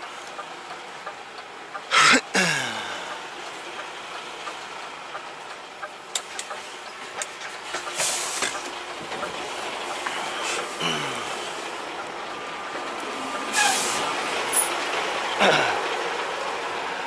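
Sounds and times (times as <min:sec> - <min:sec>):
truck engine idling: 0:00.0 - 0:17.0
air hiss burst: 0:13.5 - 0:14.1.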